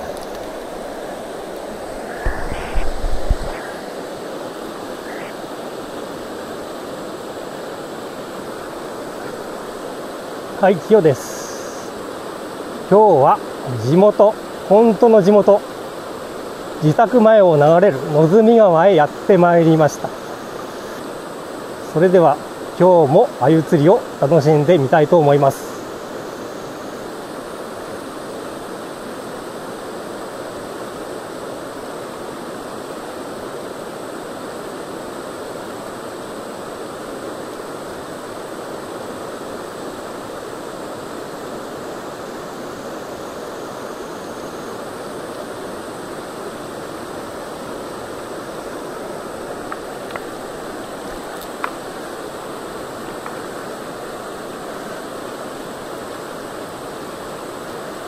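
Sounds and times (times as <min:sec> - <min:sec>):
river flowing over stones: 0:00.0 - 0:58.0
small ticks: 0:00.1 - 0:00.6.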